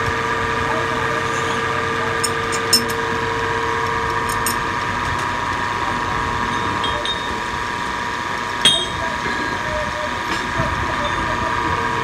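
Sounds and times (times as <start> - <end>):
metal clink: 2.2 - 3.0, 4.3 - 4.6, 6.5 - 7.4, 8.6 - 9.1.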